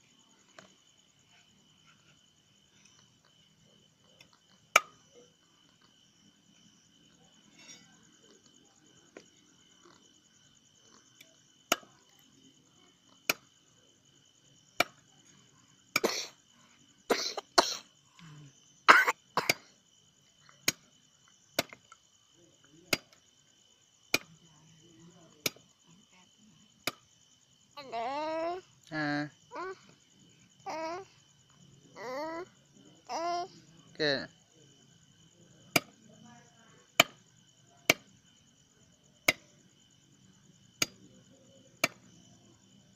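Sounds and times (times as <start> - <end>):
insects trilling: 0.0 - 42.9
machete chopping on wooden block: 21.6 - 21.8, 35.7 - 36.0, 37.0 - 37.2, 41.8 - 42.0.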